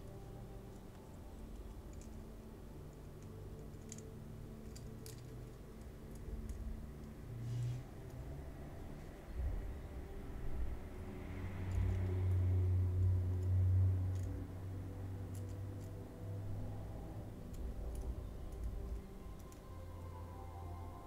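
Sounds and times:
low hum: 0:00.0 - 0:21.0
small metallic clicks: 0:00.7 - 0:07.2, 0:11.7 - 0:12.4, 0:13.0 - 0:16.6, 0:17.3 - 0:19.8.

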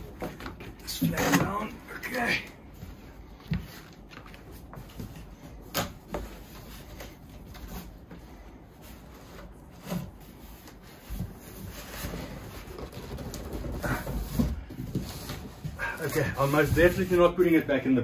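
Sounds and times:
cardboard rubbing and scraping: 0:03.5 - 0:17.6.

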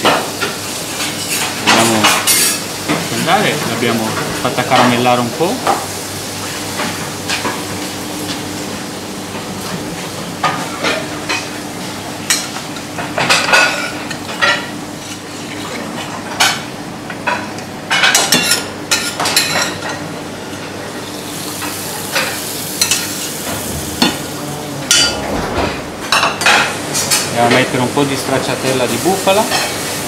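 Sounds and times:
scallop sizzling in butter: 0:21.0 - 0:24.3.

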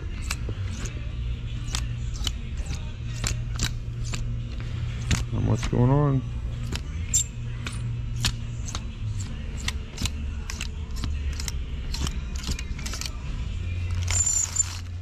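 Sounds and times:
clothes hangers clicking: 0:06.6 - 0:13.2.

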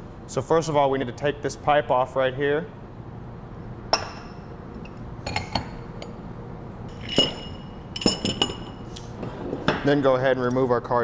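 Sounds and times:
metal pipe and wrench clinking: 0:06.9 - 0:08.8
metallic ring: 0:06.9 - 0:08.9.

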